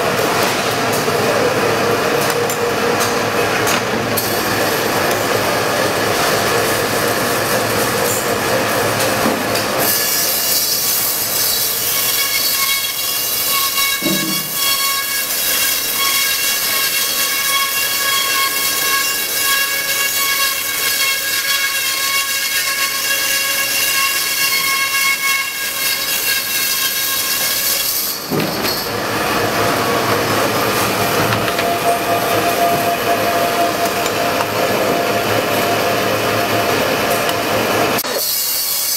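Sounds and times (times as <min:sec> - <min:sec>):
band saw running hiss: 0:09.0 - 0:28.3
high-pitched saw screech: 0:09.8 - 0:28.3, 0:38.0 - 0:38.9.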